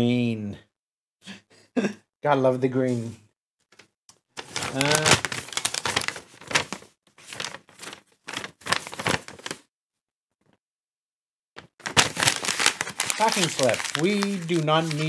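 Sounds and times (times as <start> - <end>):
paper rustling and crinkling: 3.8 - 9.6, 11.8 - 15.0.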